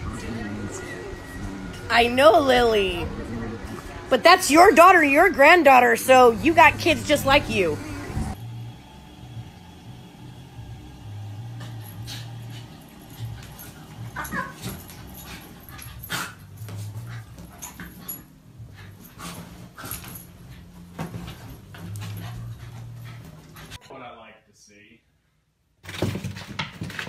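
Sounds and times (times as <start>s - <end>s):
low hum: 0.0s - 19.2s
dog whining: 11.6s - 19.3s
animals scuffling and thumping: 11.7s - 23.8s.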